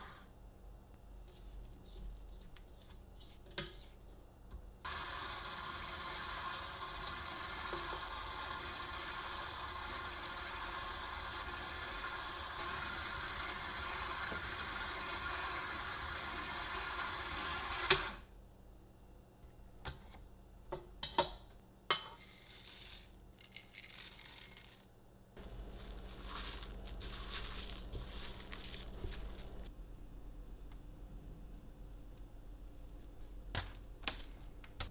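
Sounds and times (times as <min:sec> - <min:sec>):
stand mixer motor running: 0:04.9 - 0:18.2.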